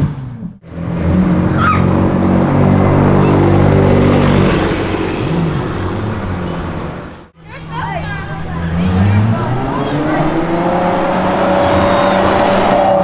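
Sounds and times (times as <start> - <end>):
sports car accelerating past: 8.6 - 13.0.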